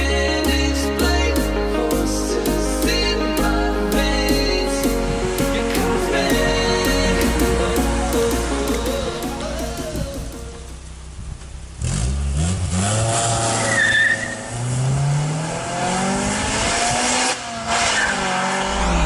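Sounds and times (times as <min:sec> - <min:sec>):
car engine accelerating: 0:04.8 - 0:19.0.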